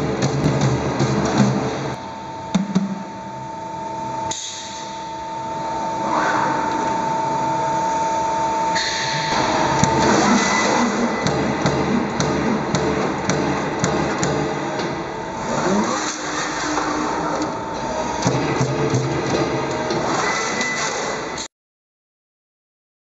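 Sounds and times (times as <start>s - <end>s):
mechanical whine with hiss: 1.4s - 13.8s
machine punch strokes: 8.7s - 21.5s.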